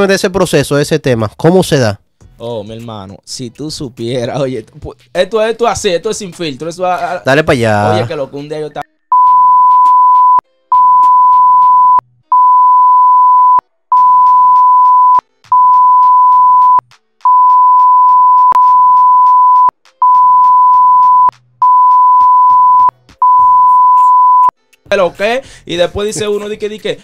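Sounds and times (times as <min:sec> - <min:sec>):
censor bleep tone: 0:09.1 - 0:24.5.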